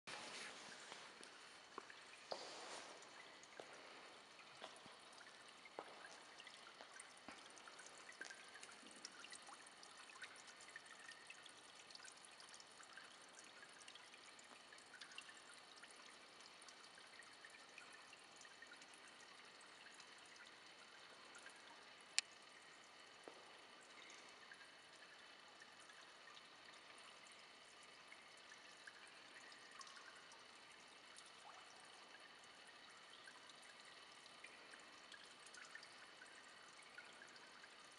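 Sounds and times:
faint trickling water: 0.0 - 37.9
low hiss: 0.1 - 37.9
small ticks: 22.1 - 22.4.

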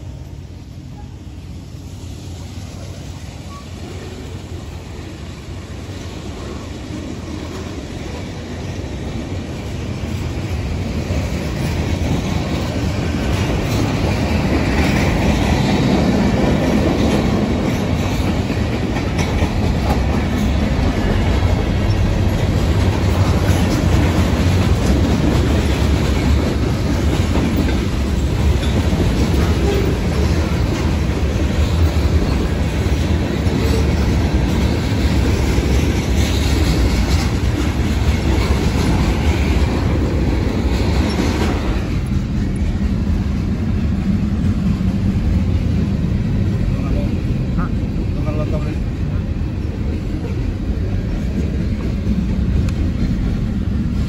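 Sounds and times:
freight train rolling past: 0.0 - 54.0
wheels clacking over rail joints: 5.6 - 45.8.

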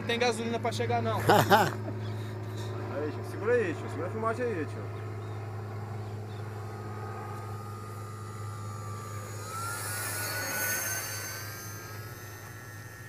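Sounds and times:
model plane propeller whining: 0.0 - 13.0.

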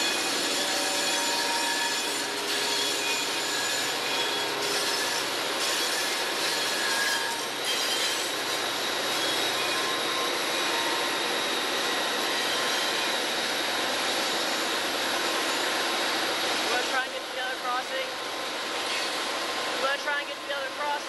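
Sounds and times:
rail noise: 0.0 - 21.0.

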